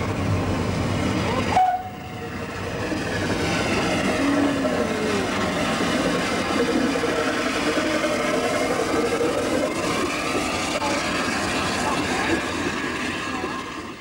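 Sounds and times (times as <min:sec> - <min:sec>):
miniature locomotive running: 0:02.8 - 0:14.0.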